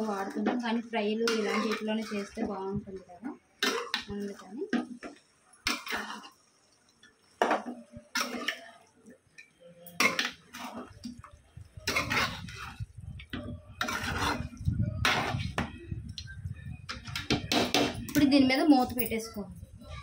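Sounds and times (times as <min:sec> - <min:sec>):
metal spoon scraping a pan: 0:00.0 - 0:02.7, 0:03.6 - 0:06.4, 0:07.4 - 0:08.8, 0:09.4 - 0:11.2, 0:11.8 - 0:15.7.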